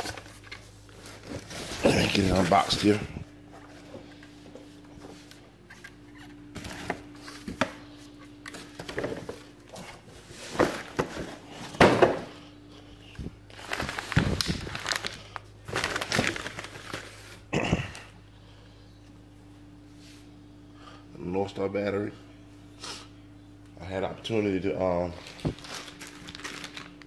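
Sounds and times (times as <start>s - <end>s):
steady low hum: 0.0s - 27.0s
cardboard packaging being opened: 13.5s - 17.5s, 25.2s - 27.0s.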